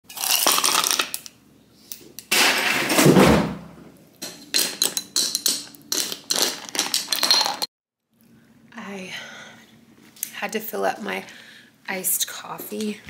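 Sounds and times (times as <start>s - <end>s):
glass clinking on stone: 4.6s - 7.7s.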